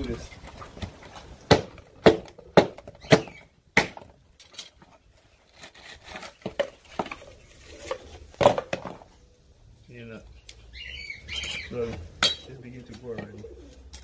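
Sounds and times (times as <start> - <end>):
machete chopping coconut husk: 1.5 - 4.1.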